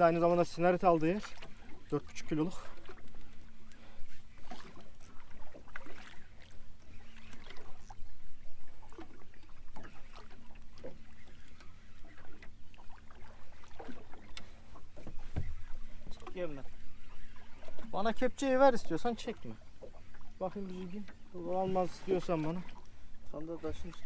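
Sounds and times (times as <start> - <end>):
water against hull: 0.0 - 24.0
wind: 0.0 - 24.0
light knocks: 15.0 - 16.4.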